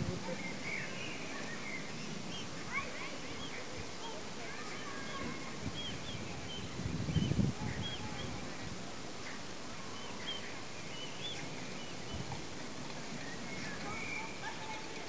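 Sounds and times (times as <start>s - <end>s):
steady outdoor hiss: 0.0s - 15.0s.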